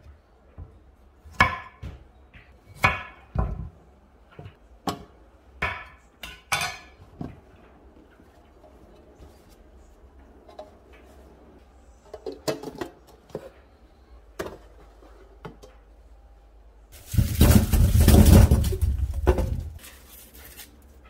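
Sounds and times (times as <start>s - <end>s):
onions tumbling into steel sink: 17.0s - 21.0s.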